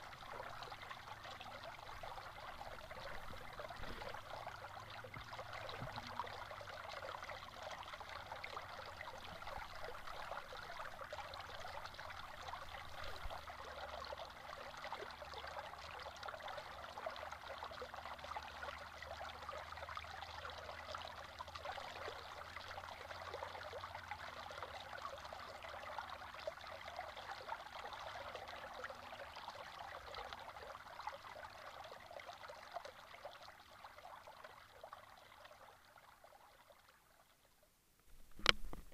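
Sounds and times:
water splashing over rocks: 0:01.8 - 0:06.4.

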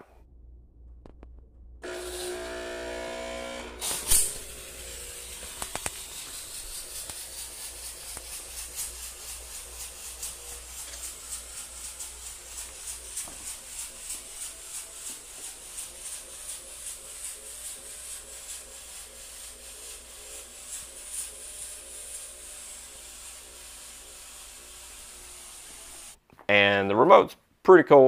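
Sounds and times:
pump humming: 0:01.8 - 0:16.2
pulsing hiss of fog jet: 0:01.9 - 0:03.0, 0:03.8 - 0:26.2.

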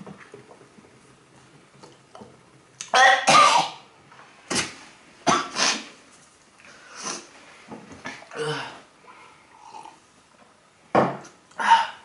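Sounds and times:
man coughing and gagging: 0:03.0 - 0:03.8.

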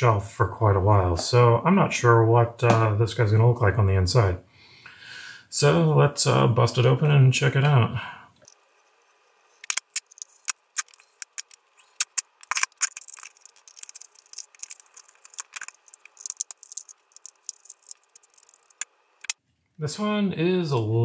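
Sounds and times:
small metallic clicks and rattles: 0:09.6 - 0:19.4.

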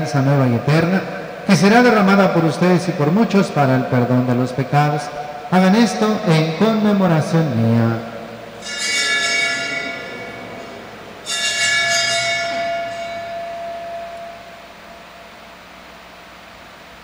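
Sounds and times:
altar bell ringing: 0:05.1 - 0:16.1.

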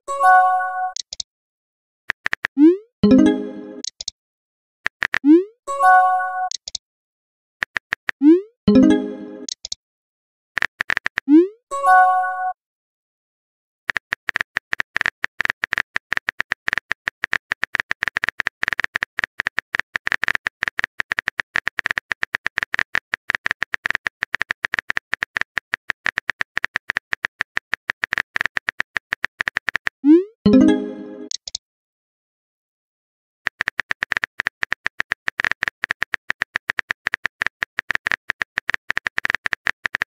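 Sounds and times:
phone keyboard typing clicks: 0:00.9 - 0:01.2, 0:02.1 - 0:04.1, 0:04.9 - 0:05.4, 0:06.4 - 0:06.8, 0:07.6 - 0:08.2, 0:08.9 - 0:09.8, 0:10.6 - 0:11.3, 0:13.9 - 0:30.0, 0:31.2 - 0:31.6, 0:33.5 - 0:40.0
message chime: 0:03.0 - 0:03.8, 0:08.7 - 0:09.5, 0:30.5 - 0:31.3.

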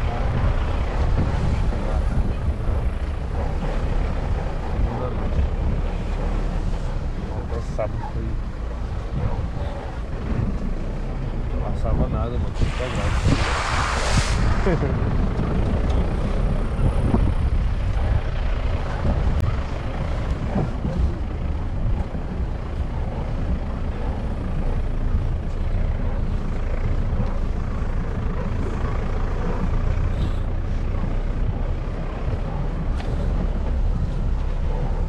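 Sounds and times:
strong wind buffeting microphone: 0:00.0 - 0:35.0.

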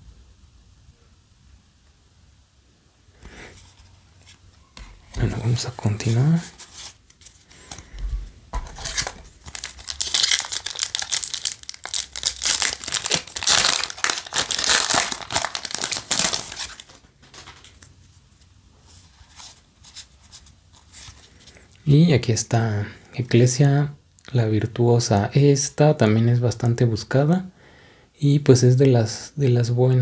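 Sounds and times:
foil wrapper crinkling and tearing: 0:08.6 - 0:17.8.

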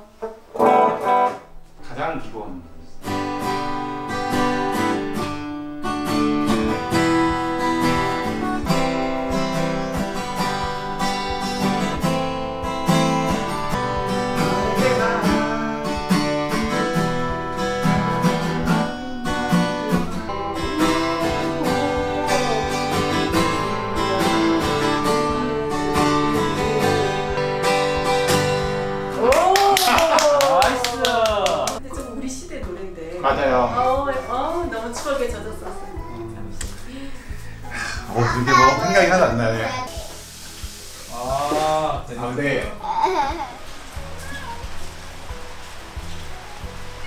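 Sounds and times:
acoustic guitar strumming: 0:00.0 - 0:47.0
man singing: 0:14.4 - 0:17.1, 0:17.8 - 0:27.9.

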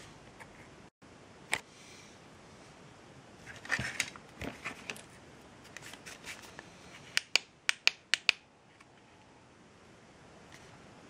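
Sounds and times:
sharp clicks: 0:07.2 - 0:08.4.

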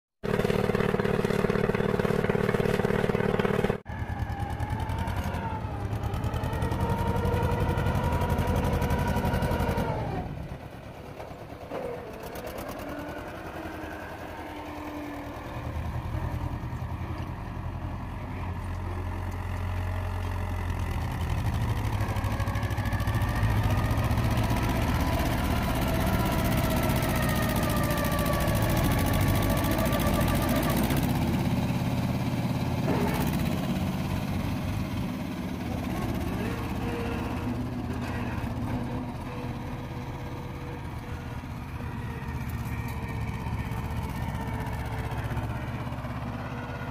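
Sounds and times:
tractor diesel engine working hard: 0:00.2 - 0:46.9.

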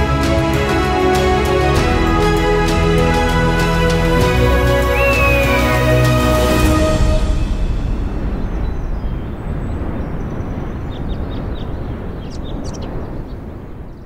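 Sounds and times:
rushing wind: 0:00.0 - 0:14.0
high bird chirps: 0:04.9 - 0:05.8.

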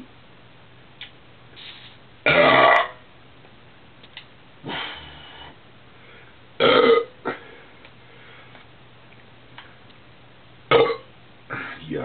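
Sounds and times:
man burping: 0:02.2 - 0:03.0, 0:06.6 - 0:07.5, 0:10.7 - 0:11.8.

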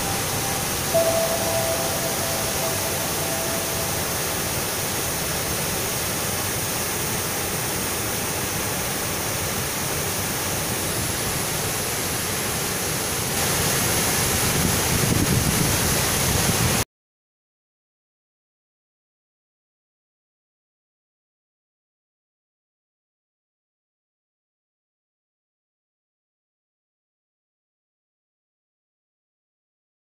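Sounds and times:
waterfall rushing: 0:00.0 - 0:16.8.

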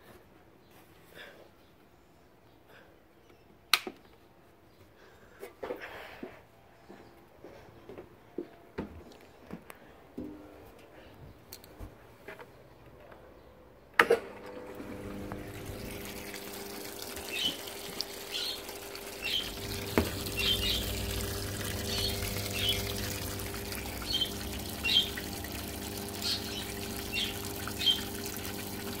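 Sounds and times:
water rushing into tub: 0:14.0 - 0:29.0
lower hum: 0:14.6 - 0:29.0.

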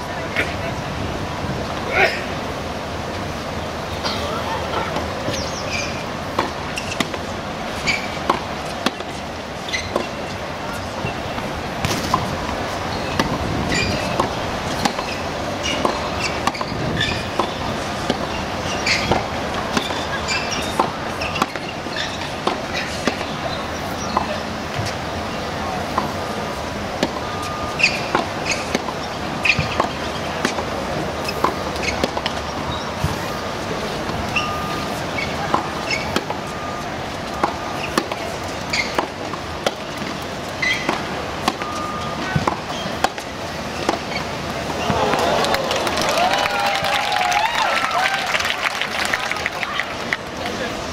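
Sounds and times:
outdoor crowd noise: 0:00.0 - 0:50.9
steady background noise: 0:00.0 - 0:50.9
tennis balls struck by racquets: 0:04.0 - 0:25.0, 0:27.0 - 0:45.5
balls bouncing on hard court: 0:27.8 - 0:33.3.

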